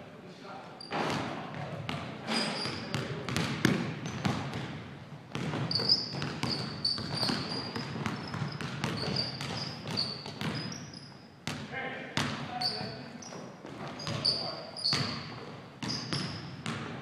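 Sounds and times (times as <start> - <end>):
sneakers squeaking on floor: 0.8 - 17.0
basketball bouncing on hardwood floor: 0.9 - 10.8, 12.2 - 12.4, 14.9 - 17.0.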